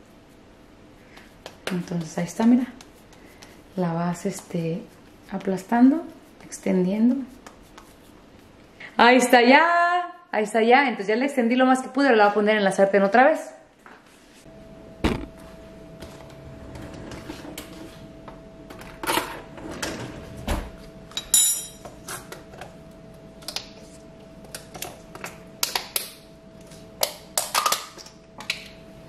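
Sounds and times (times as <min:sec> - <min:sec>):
faint steady hum: 0:00.0 - 0:29.0
metallic clink: 0:21.2 - 0:21.8.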